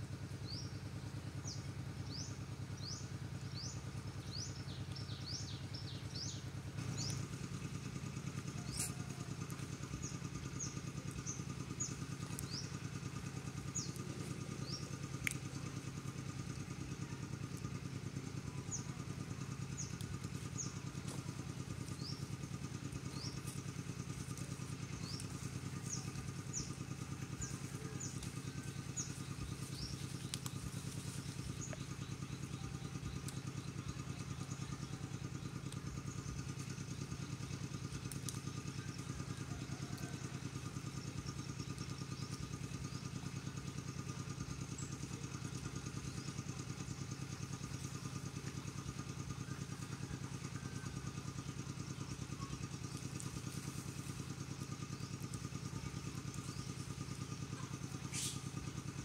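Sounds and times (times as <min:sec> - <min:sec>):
engine idling: 0:00.0 - 0:59.0
faint clicks: 0:15.0 - 0:15.6, 0:27.4 - 0:32.1, 0:37.5 - 0:39.0.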